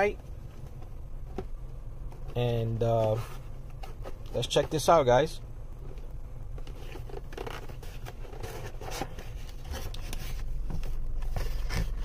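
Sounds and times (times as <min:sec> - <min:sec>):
cardboard scraping and rustling: 0:02.1 - 0:05.0, 0:06.6 - 0:12.0.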